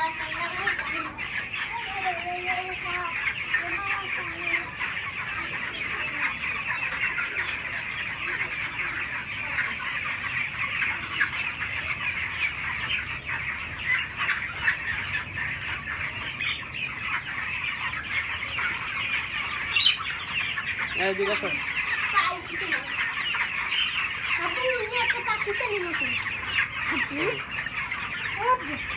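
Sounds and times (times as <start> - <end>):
chicks peeping and cheeping: 0.0 - 28.9.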